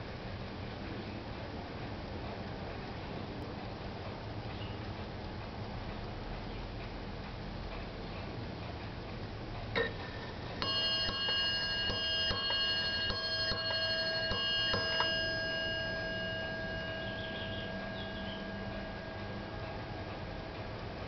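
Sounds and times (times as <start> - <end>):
ship's bell strikes: 10.6 - 21.0.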